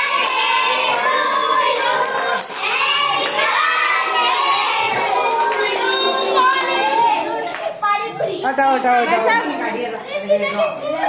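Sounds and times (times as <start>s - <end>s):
children singing: 0.0s - 7.8s
hands clapping: 0.0s - 7.8s.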